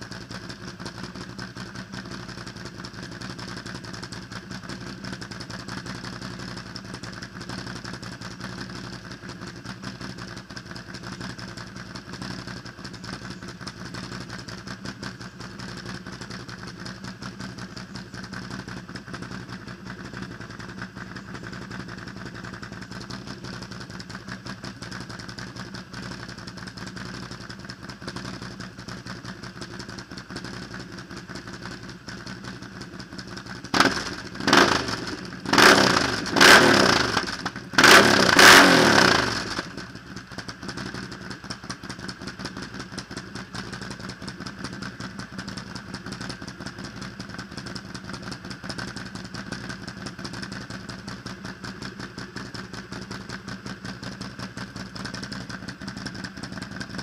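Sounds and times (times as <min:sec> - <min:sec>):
engine idling and revving: 0:00.0 - 0:57.0.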